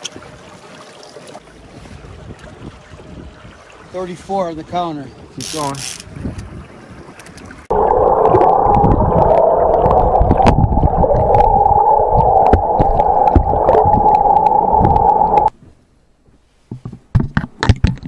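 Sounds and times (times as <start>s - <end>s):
muffled underwater rush: 7.6s - 15.5s
steady drone: 7.7s - 15.5s.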